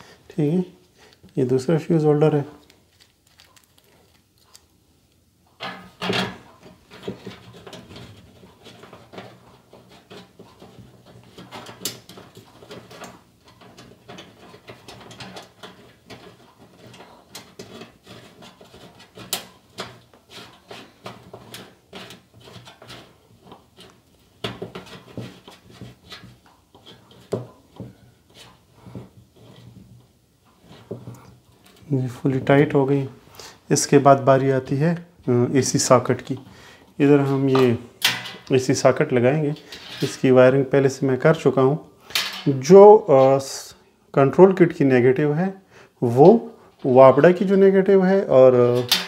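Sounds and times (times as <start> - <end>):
small clicks taps and scrapes: 6.6 - 31.9.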